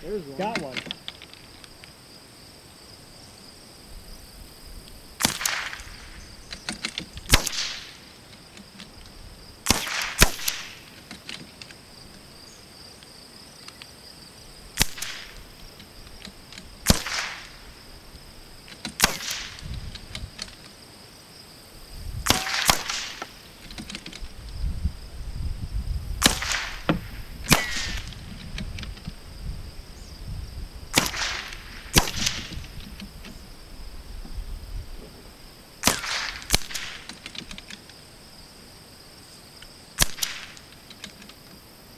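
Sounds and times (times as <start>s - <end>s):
rifle shots cracking: 5.2s - 6.1s, 7.3s - 8.0s, 9.6s - 10.9s, 14.8s - 15.5s, 16.8s - 17.6s, 18.9s - 19.6s, 22.2s - 23.4s, 26.2s - 28.2s, 30.9s - 32.6s, 35.8s - 37.2s, 40.0s - 40.7s.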